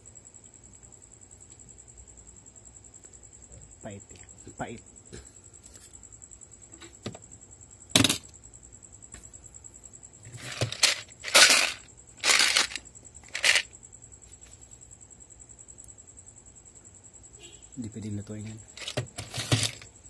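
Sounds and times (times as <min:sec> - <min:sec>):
screws rattling in plastic box: 0:10.3 - 0:13.7, 0:18.6 - 0:19.9.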